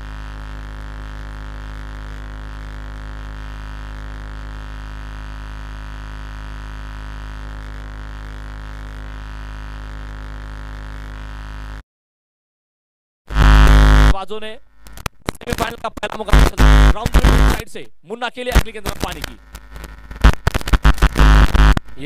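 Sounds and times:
electrical hum: 13.3s - 22.0s.

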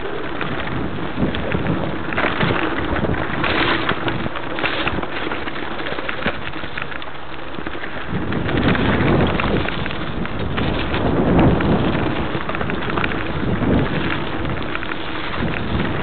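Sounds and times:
bike rattling and knocking: 0.0s - 16.0s
tyres crunching over dirt: 0.0s - 16.0s
wind on microphone: 0.0s - 16.0s.

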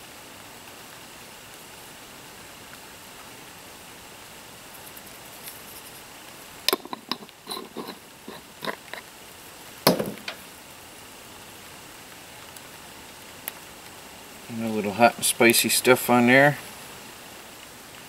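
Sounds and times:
glass jar knocking on wooden table: 9.9s - 10.4s.

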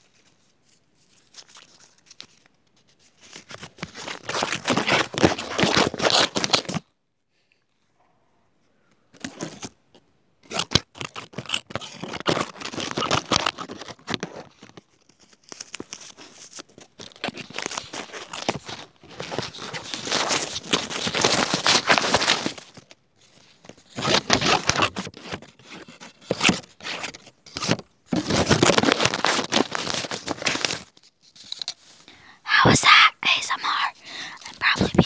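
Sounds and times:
crackling handling noise: 8.9s - 32.2s.

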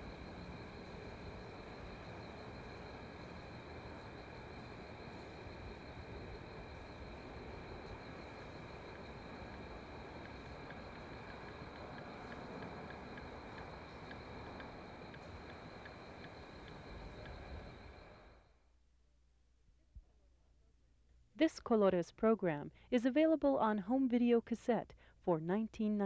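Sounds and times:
crickets chirping chorus: 0.0s - 18.5s
pulsing insect chirp: 0.0s - 18.5s.

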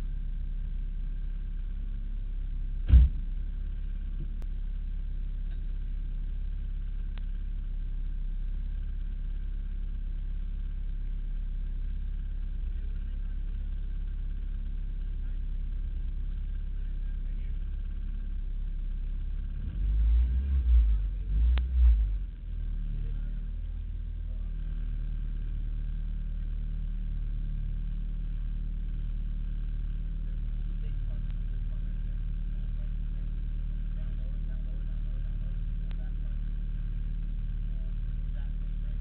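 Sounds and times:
car engine idling: 0.0s - 39.0s
loud thump: 2.8s - 3.3s.

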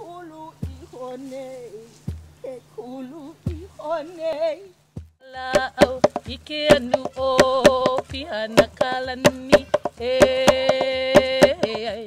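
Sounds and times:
gourd drum strikes: 0.6s - 0.9s, 2.0s - 2.4s, 3.5s - 3.7s, 4.9s - 12.0s
woman chanting long held notes: 5.4s - 12.0s.

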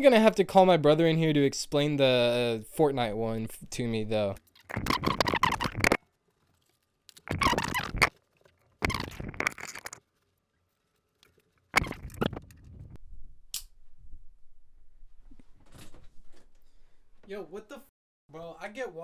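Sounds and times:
rubbing on microphone: 4.7s - 6.0s, 7.2s - 8.1s.

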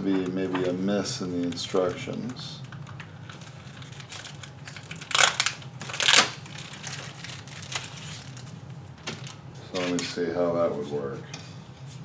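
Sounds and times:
plastic packaging crinkling: 1.5s - 10.0s.

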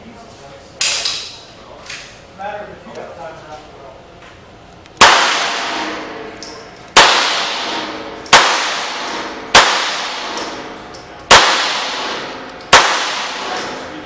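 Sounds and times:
handgun shots echoing indoors: 0.8s - 1.4s, 5.0s - 14.0s.

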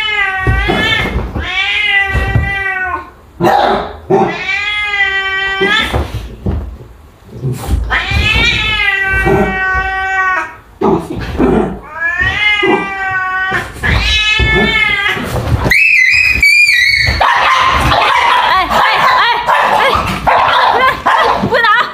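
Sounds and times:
cat yowling: 4.1s - 6.1s, 7.9s - 10.6s, 11.8s - 18.4s
cat and dog screeching scuffle: 7.4s - 10.6s, 11.2s - 21.5s.

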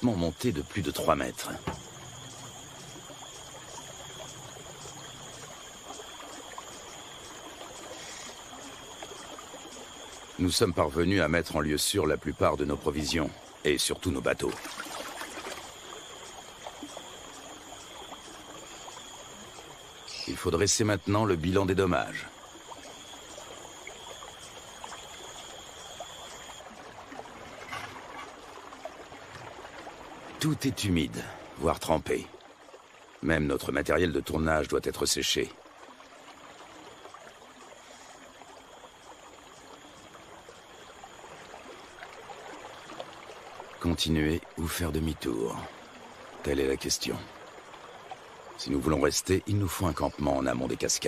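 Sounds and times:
river water rushing: 0.0s - 51.0s.

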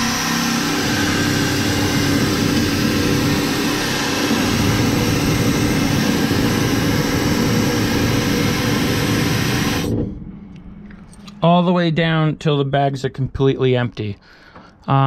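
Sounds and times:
low rumble: 0.0s - 12.7s
air rushing from valve: 0.8s - 10.1s.

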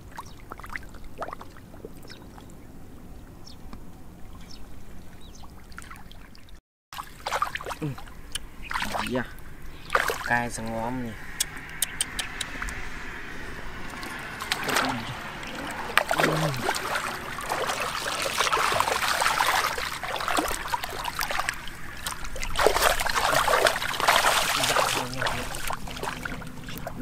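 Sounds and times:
hands splashing in muddy water: 8.7s - 9.1s, 9.8s - 10.4s, 13.9s - 27.0s.

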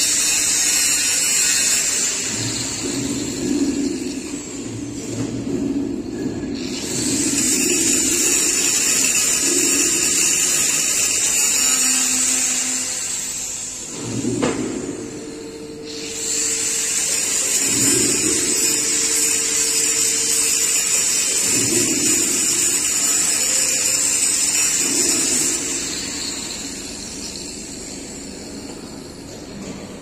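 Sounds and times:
angle grinder grinding steel pipe: 6.2s - 14.0s, 15.8s - 28.1s.

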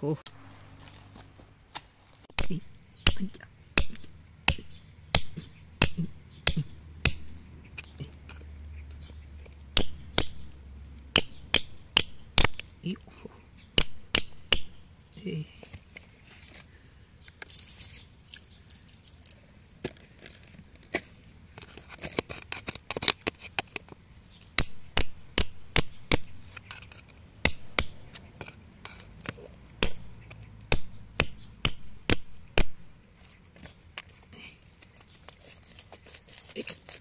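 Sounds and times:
chisel tapping and scraping rock: 2.3s - 13.1s, 13.7s - 14.8s, 19.8s - 32.8s.

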